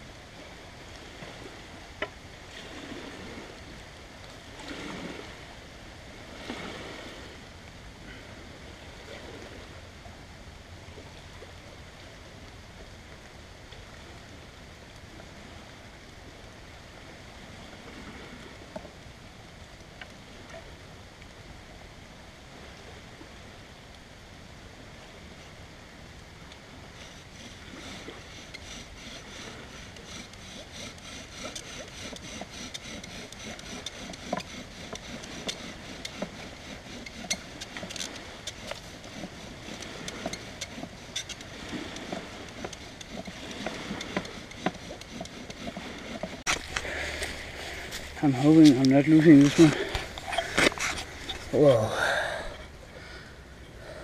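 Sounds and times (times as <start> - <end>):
steady background hiss: 0.0 - 44.5, 46.4 - 54.0
wood rasping on wood: 27.0 - 51.7.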